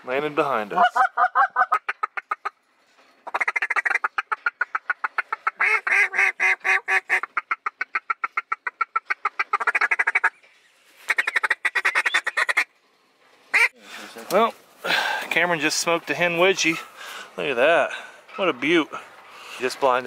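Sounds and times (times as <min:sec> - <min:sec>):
duck call reedy notes: 0:03.2 - 0:10.4, 0:11.1 - 0:12.7, 0:13.5 - 0:13.7.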